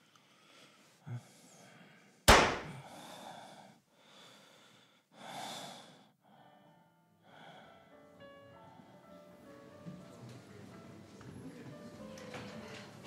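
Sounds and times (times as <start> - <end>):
woman breathing heavily: 0.0 - 8.1
soft music with held notes: 6.3 - 13.0.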